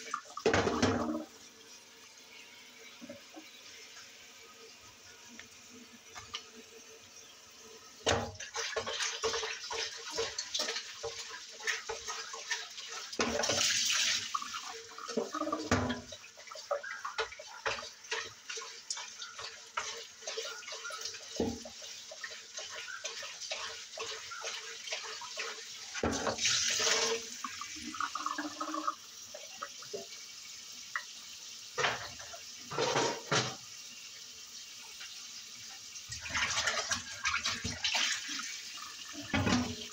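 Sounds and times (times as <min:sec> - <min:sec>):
tap running water: 0:00.0 - 0:39.9
dishes clinking in a sink: 0:00.2 - 0:01.2, 0:13.2 - 0:13.8, 0:15.0 - 0:27.2, 0:31.8 - 0:33.7, 0:39.2 - 0:39.9.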